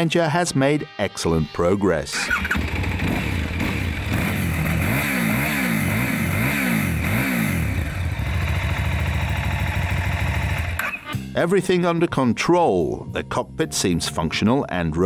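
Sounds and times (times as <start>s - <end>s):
motorcycle engine revving: 2.2s - 11.1s
motorcycle engine idling: 2.3s - 10.8s.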